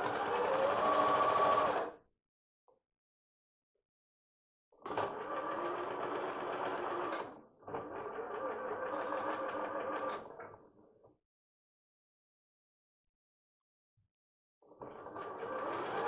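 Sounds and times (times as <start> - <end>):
electric sewing machine stitching: 0.0 - 2.0, 4.9 - 10.2, 15.0 - 16.0.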